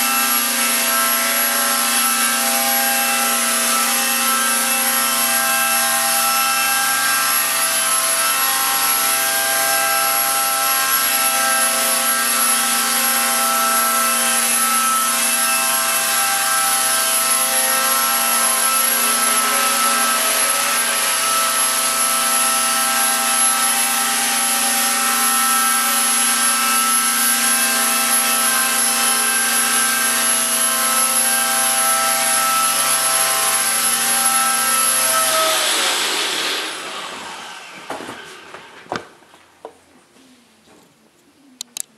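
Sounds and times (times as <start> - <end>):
toy helicopter motor whine: 10.8 - 37.7.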